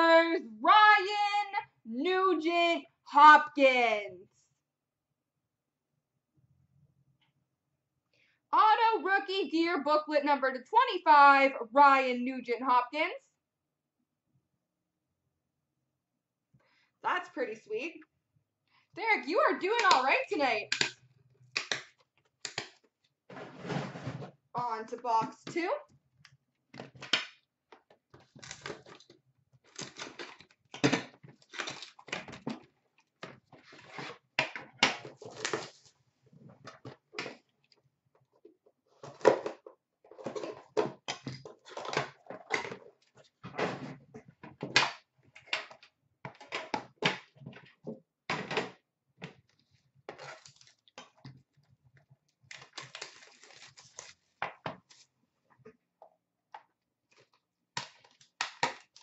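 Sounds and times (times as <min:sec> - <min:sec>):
packaging crinkling and scraping: 0:28.1 - 0:33.0, 0:35.0 - 0:36.8, 0:40.0 - 0:43.4, 0:49.5 - 0:51.0, 0:52.4 - 0:55.1.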